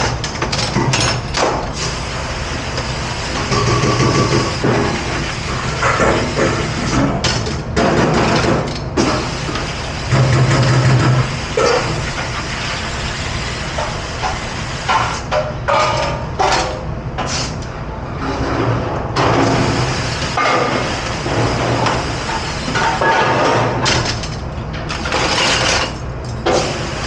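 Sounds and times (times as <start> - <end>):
low machinery hum: 0.0 - 27.0
sprayer blasting water on steel: 1.8 - 6.9, 9.0 - 15.3, 19.4 - 23.0, 26.5 - 27.0.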